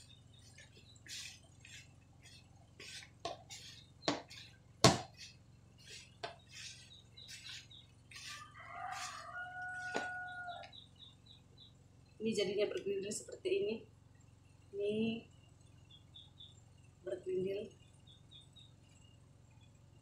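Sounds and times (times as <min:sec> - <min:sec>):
rooster crowing: 0:08.2 - 0:10.8.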